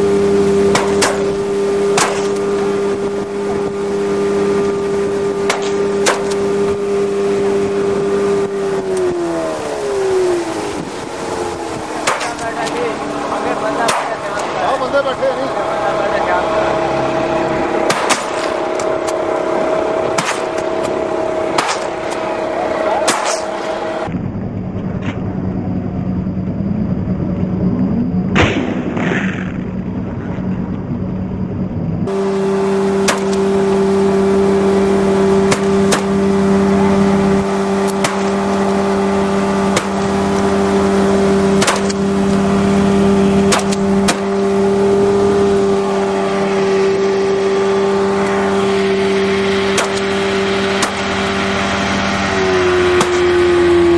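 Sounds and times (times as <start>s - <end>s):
motorboat engine drone: 0.0s - 53.9s
sharp cracks: 0.7s - 2.6s, 5.4s - 6.4s, 12.0s - 12.8s, 13.8s - 14.5s, 17.8s - 19.2s, 20.1s - 22.3s, 23.0s - 23.6s, 33.0s - 33.4s, 35.4s - 36.2s, 37.8s - 38.6s, 39.7s - 40.5s, 41.6s - 42.4s, 43.5s - 44.3s, 49.7s - 51.3s, 52.9s - 53.4s.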